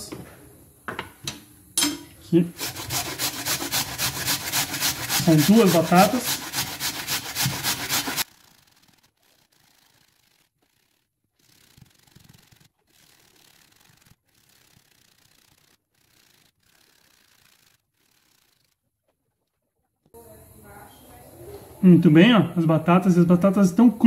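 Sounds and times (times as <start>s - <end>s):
potato rasping on a grater: 2.5s - 18.7s.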